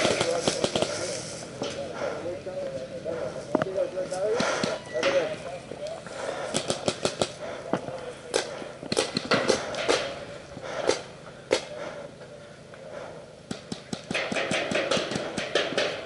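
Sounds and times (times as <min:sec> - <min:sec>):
paintball markers firing: 0:00.0 - 0:01.1, 0:06.5 - 0:07.4, 0:08.3 - 0:10.1, 0:13.5 - 0:16.0.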